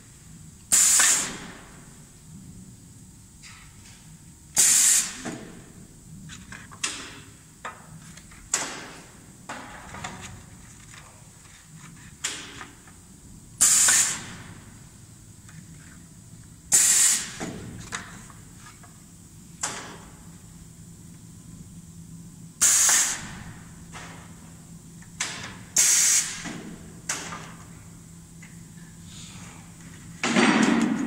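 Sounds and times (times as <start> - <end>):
compressed air hissing: 0.7 - 1.6, 4.6 - 5.3, 13.6 - 14.5, 16.7 - 17.4, 22.6 - 23.4, 25.8 - 26.5.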